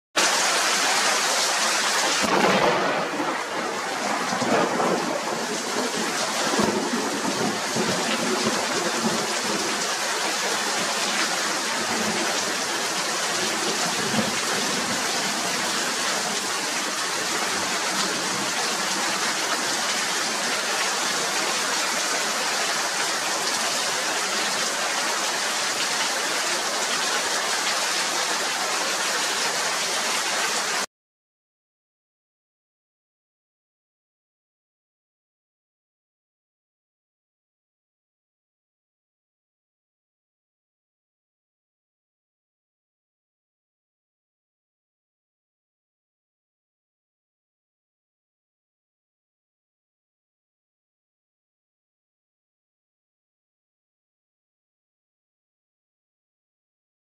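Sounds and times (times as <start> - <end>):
heavy rain pouring: 0.2 - 30.9
thunder rumbling: 2.2 - 9.8.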